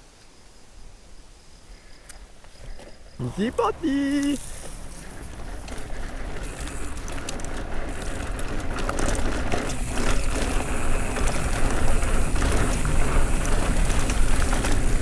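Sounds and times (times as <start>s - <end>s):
bike tyres on dirt: 0.8s - 15.0s
bike clicking and rattling: 2.7s - 15.0s
wind rumble on microphone: 3.2s - 15.0s.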